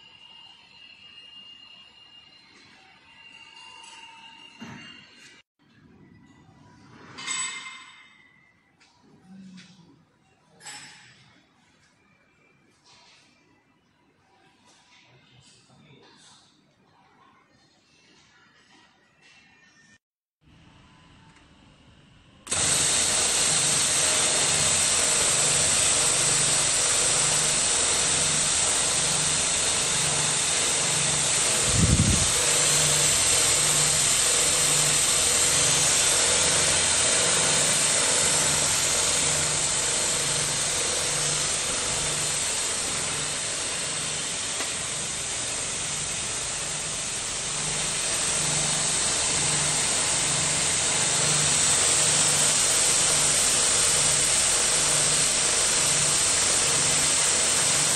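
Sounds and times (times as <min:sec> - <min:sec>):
sewing machine whirring: 0:22.5 - 0:57.9.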